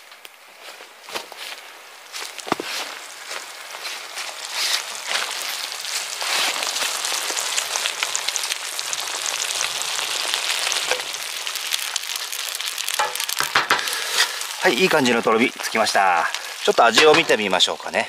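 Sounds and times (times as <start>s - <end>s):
sauce simmering and sizzling: 0.0s - 18.0s
small pops and crackles: 0.0s - 18.0s.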